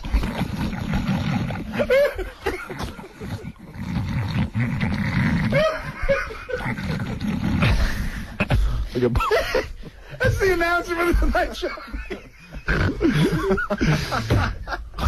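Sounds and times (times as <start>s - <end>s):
group of people laughing: 1.8s - 3.4s, 5.5s - 10.4s, 11.0s - 15.0s.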